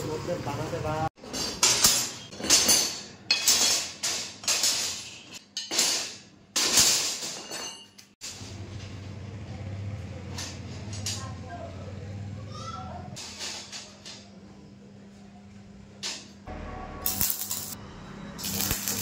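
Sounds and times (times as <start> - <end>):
metal strips clanking on bars: 1.2 - 8.2.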